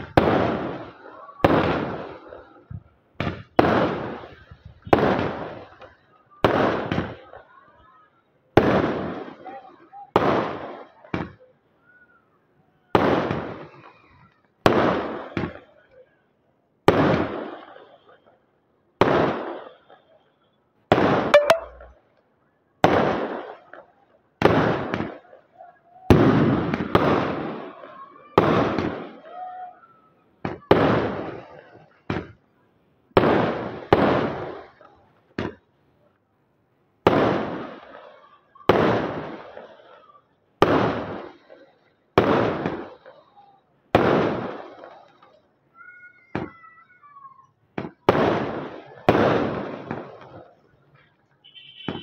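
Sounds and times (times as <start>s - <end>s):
fireworks bursting with echo: 0.0s - 7.4s, 8.6s - 11.4s, 20.9s - 21.8s, 33.1s - 35.7s, 37.0s - 46.9s, 47.7s - 51.1s.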